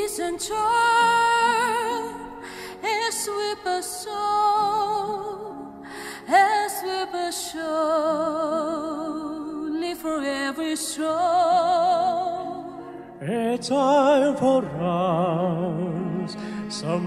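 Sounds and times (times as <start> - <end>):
operatic singing: 0.0 - 17.0
instrumental accompaniment: 14.2 - 17.0.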